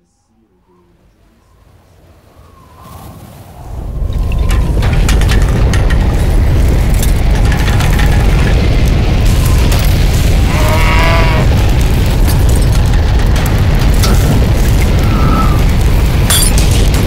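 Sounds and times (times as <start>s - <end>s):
tornado wind deep rumble: 0.0s - 17.0s
wavering wind howl: 0.0s - 17.0s
debris crackling: 3.6s - 17.0s.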